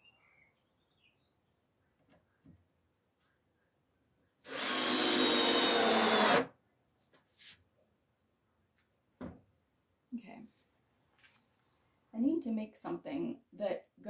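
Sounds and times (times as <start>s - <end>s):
cordless drill driving screw into wood: 4.5s - 6.5s.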